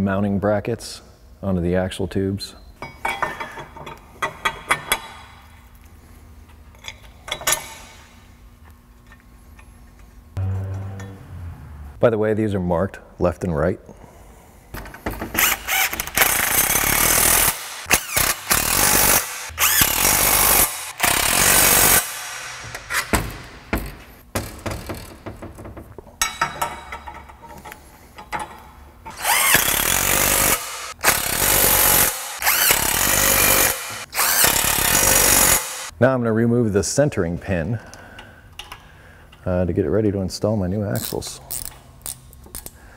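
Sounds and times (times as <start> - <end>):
impact driver running in bolts: 29.1 - 35.9.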